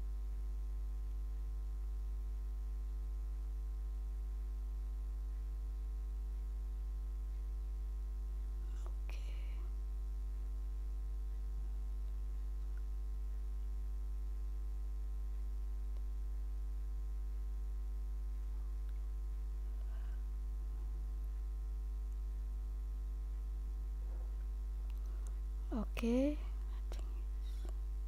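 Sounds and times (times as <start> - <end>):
electrical mains hum: 0.0 - 28.0.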